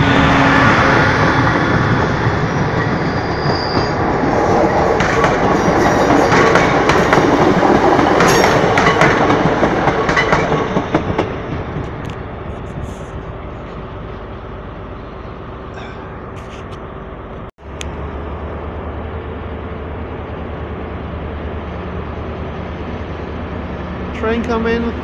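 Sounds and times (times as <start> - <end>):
low steady train rumble: 0.0 - 25.0
train wheels clicking over rail joints: 4.9 - 12.2.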